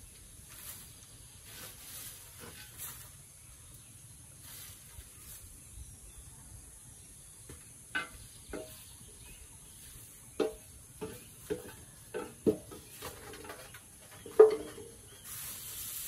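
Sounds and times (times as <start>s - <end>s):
leaves rustling on tray: 0.5s - 3.3s, 12.9s - 16.0s.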